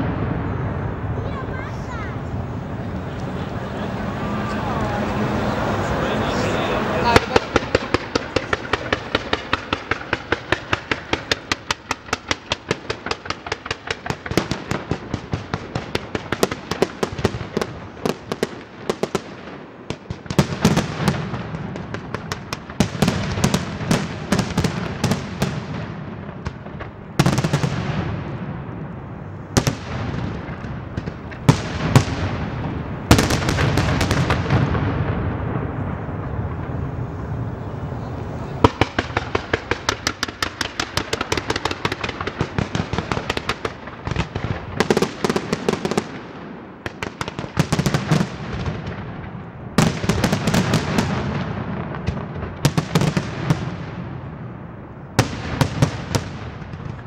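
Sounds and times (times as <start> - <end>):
low rumble: 0.0 - 11.5, 34.4 - 40.1
loud firework booms: 0.0 - 57.0
sharp firework bangs: 0.0 - 57.0.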